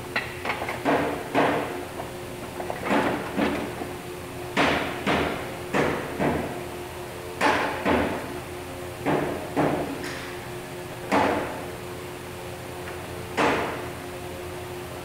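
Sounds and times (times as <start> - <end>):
hammer striking wood: 4.6 - 6.5.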